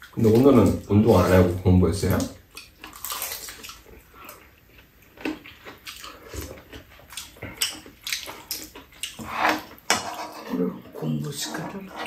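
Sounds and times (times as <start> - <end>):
wet chewing and lip smacks: 2.5 - 9.2.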